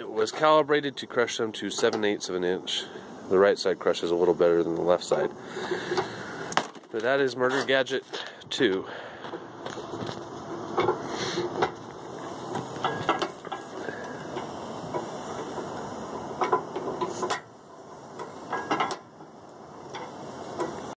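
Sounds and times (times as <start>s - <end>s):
metal clanks: 9.2s - 17.5s, 18.1s - 19.2s.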